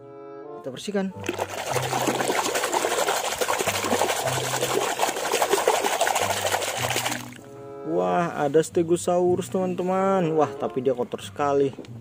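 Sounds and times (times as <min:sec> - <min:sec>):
hand scrubbing plastic toy: 0:01.2 - 0:07.4
soapy water sloshing in a basin: 0:01.2 - 0:07.4.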